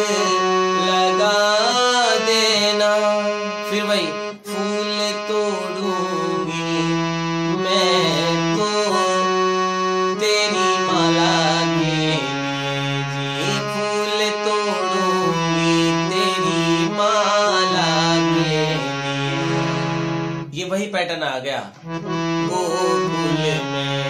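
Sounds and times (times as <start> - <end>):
harmonium melody: 0.0 - 24.0.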